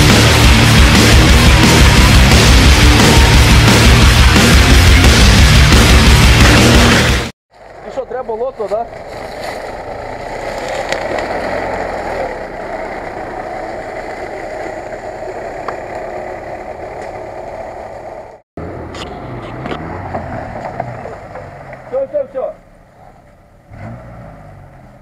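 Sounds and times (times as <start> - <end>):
car engine running: 0.0 - 23.7
off-road vehicle engine: 0.0 - 25.0.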